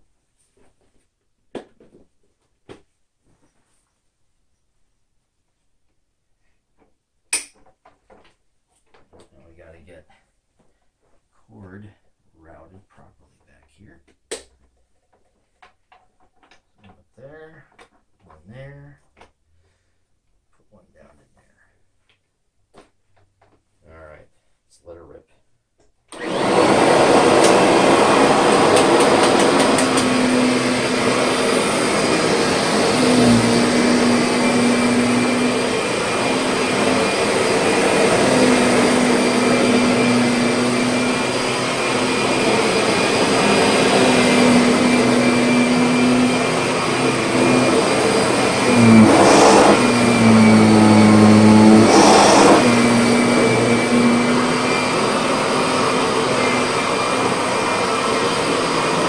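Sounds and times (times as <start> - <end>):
vacuum cleaner running on carpet: 26.1 - 59.0.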